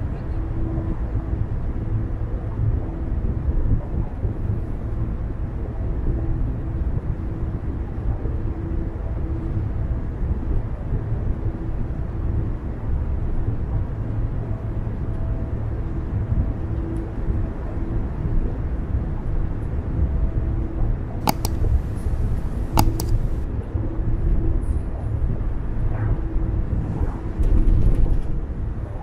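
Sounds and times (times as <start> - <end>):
car road and engine noise: 21.3 - 23.5
faint hum: 21.3 - 23.7.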